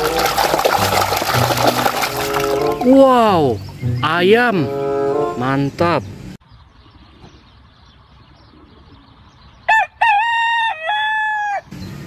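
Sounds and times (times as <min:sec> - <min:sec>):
faint outdoor background: 0:00.0 - 0:12.0
rooster crowing: 0:09.7 - 0:11.7.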